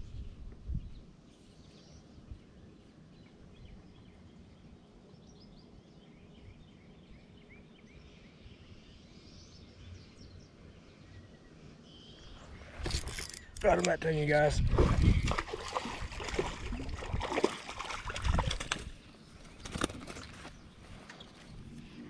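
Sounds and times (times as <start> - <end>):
low wind rumble: 0.0 - 1.3, 2.0 - 22.0
small birds chirping: 0.0 - 15.4, 16.2 - 22.0.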